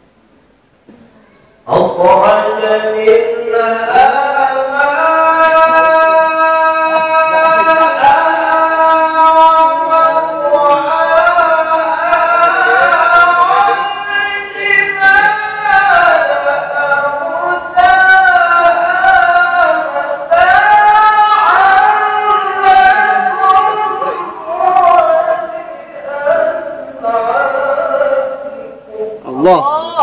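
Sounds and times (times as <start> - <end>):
man chanting melodically: 1.6 - 30.0.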